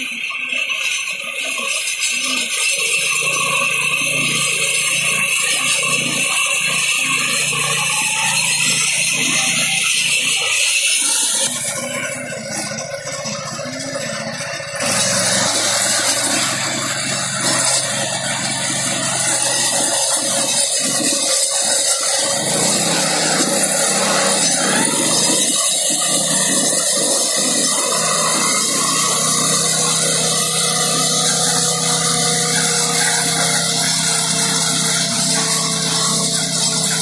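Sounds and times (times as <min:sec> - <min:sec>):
mower discs cutting grass: 0:00.0 - 0:37.0
petrol engine running: 0:00.0 - 0:37.0.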